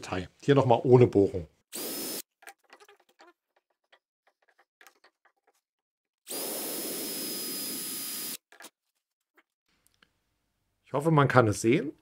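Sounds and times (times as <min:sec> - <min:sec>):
drill motor whining and cutting wood: 0:01.7 - 0:02.2, 0:06.3 - 0:08.4.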